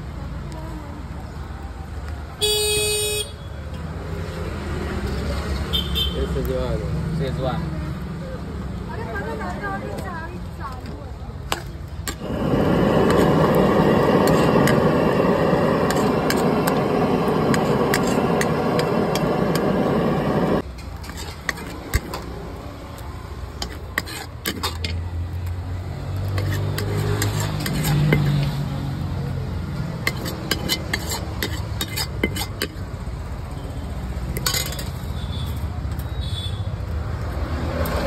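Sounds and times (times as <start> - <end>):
metal ladle scraping wok: 12.0 - 22.2, 23.6 - 25.0, 26.3 - 28.6, 30.0 - 32.8, 34.3 - 35.1.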